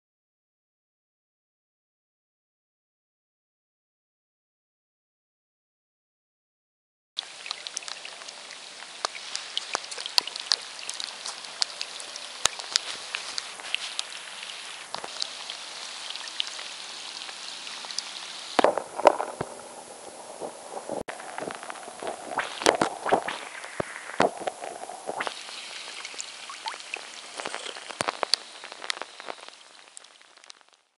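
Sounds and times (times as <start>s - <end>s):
rain pattering on water: 7.2s - 31.0s.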